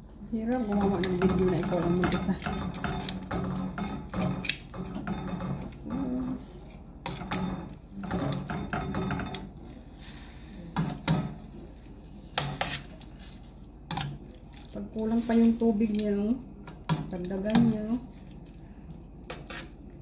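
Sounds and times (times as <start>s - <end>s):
metal tongs scraping steel pan: 0.4s - 9.8s.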